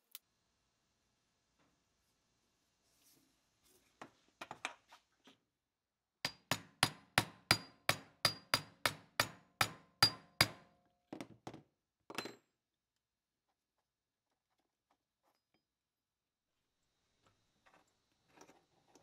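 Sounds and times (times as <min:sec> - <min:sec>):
hammer striking metal plate: 0:06.3 - 0:10.7.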